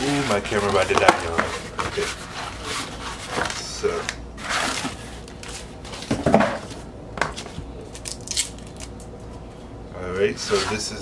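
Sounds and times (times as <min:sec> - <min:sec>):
cardboard scraping and rustling: 0:00.0 - 0:06.8.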